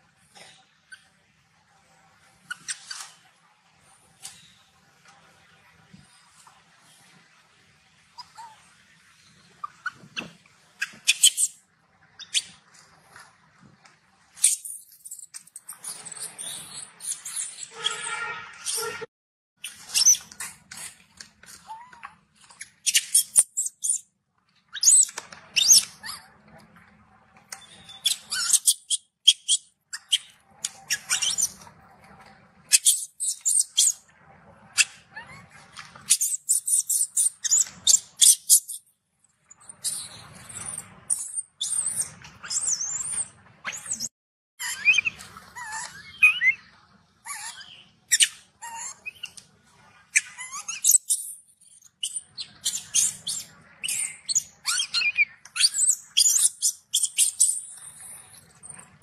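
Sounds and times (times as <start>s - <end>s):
baby monkey squealing: 8.2s - 8.6s, 10.8s - 11.6s, 14.4s - 19.0s, 19.6s - 21.0s, 21.6s - 24.0s, 24.7s - 26.3s, 27.6s - 31.6s, 32.7s - 34.0s, 34.8s - 38.8s, 39.8s - 46.6s, 47.2s - 49.4s, 50.1s - 57.7s.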